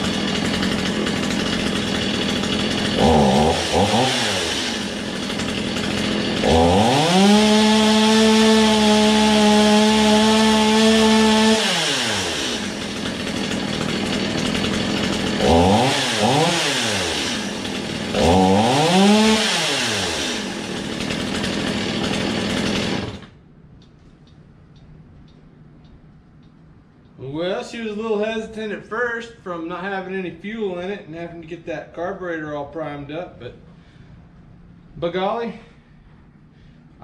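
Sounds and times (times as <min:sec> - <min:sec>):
chainsaw engine revving and idling: 0:00.0 - 0:23.4.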